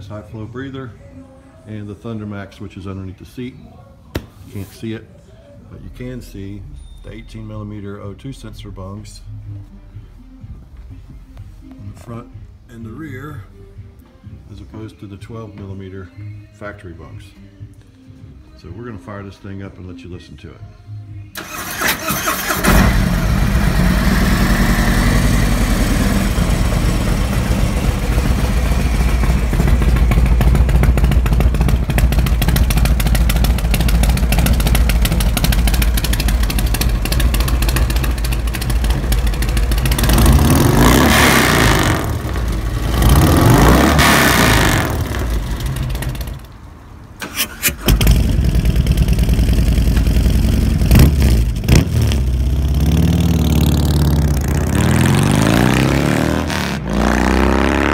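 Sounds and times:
motorcycle engine idling: 0:23.0 - 0:40.9, 0:45.0 - 0:46.5, 0:47.9 - 0:51.7.

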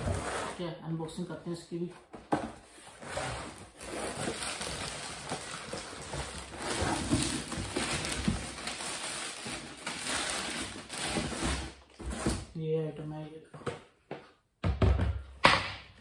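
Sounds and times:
plastic bag crinkling: 0:04.0 - 0:11.3.

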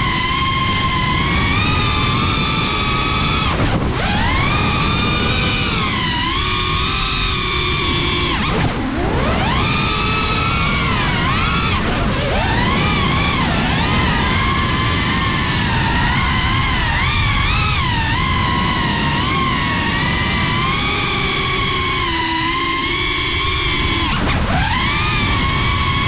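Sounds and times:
drone motors whining: 0:00.0 - 0:26.0
propeller wash and wind rushing: 0:00.0 - 0:26.0.

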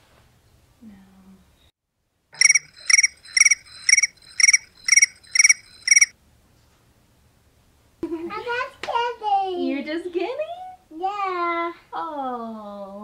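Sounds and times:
cricket chirps: 0:02.4 - 0:06.1.

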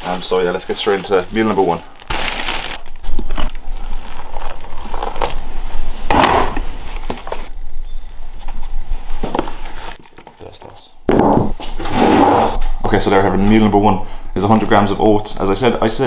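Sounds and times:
plastic bag rustling: 0:00.0 - 0:07.5.

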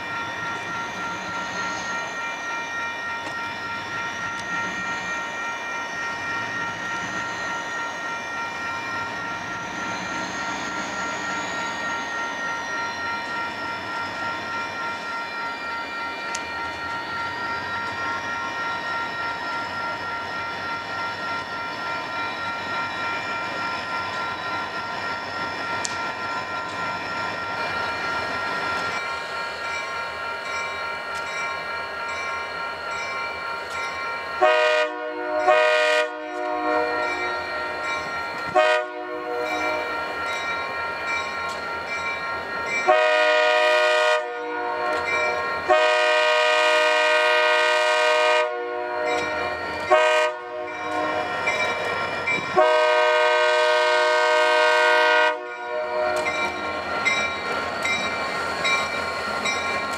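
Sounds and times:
diesel locomotives running: 0:00.0 - 0:59.9
train air horn blasts: 0:34.4 - 0:37.0, 0:38.6 - 0:39.5, 0:42.9 - 0:45.1, 0:45.7 - 0:49.2, 0:49.9 - 0:51.3, 0:52.6 - 0:56.3.

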